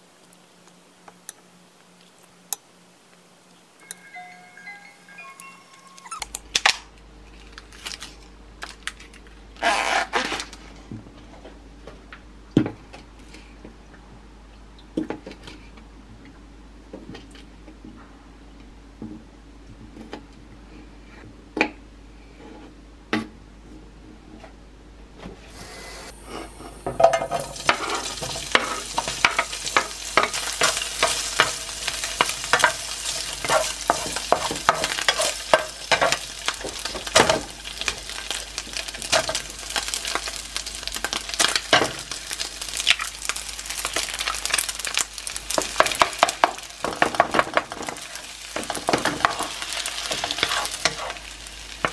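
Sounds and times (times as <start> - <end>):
sausage sizzling in frying pan: 26.2 - 51.9
spatula scraping pan: 27.4 - 37.1, 48.6 - 51.2.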